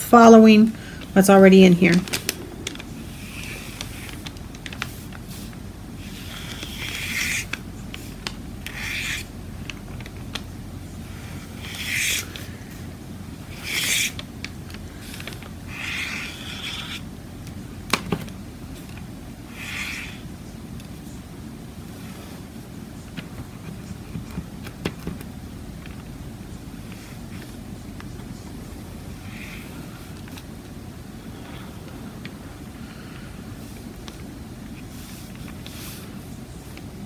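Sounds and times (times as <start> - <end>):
paint pen scraping on paper: 5.3 - 8.1, 8.7 - 9.3, 11.2 - 12.4, 13.5 - 14.2, 15.7 - 17.0, 19.5 - 20.2.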